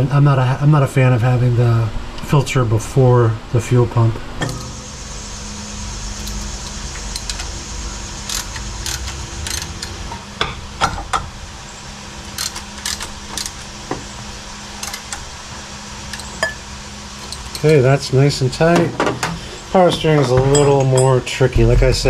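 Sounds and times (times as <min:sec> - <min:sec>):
ratchet wrench clicking: 0:06.0 - 0:10.2, 0:12.2 - 0:13.9, 0:14.8 - 0:15.3, 0:16.0 - 0:16.6, 0:17.2 - 0:17.8.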